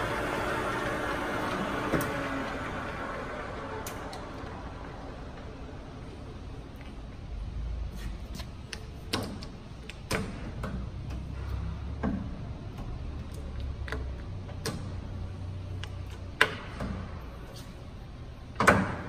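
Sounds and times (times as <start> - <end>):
lathe humming: 0.0 - 6.1
lever clicks and clunks: 15.8 - 17.2.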